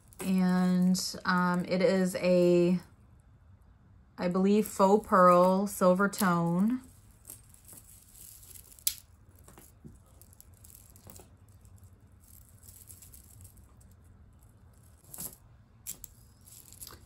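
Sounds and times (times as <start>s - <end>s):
necklace clicking and rattling: 4.6s - 17.0s.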